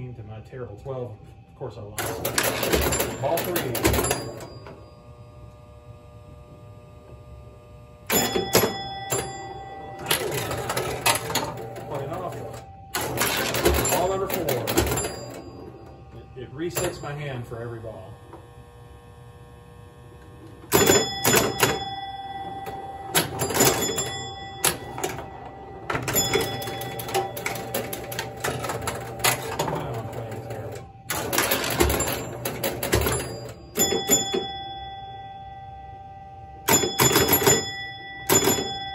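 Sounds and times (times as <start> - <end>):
faint steady hum: 0.0 - 38.9
pinball clacks: 2.0 - 4.9, 8.1 - 17.4, 20.6 - 35.2, 36.6 - 38.9
pinball strikes with ringing chimes: 2.0 - 5.0, 8.1 - 18.0, 20.5 - 38.9.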